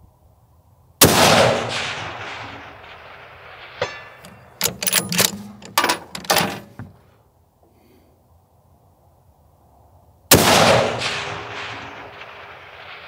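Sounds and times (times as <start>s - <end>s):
rifle shot: 1.0s - 5.6s, 10.3s - 13.0s
rifle bolt metallic clicks: 3.8s - 7.0s.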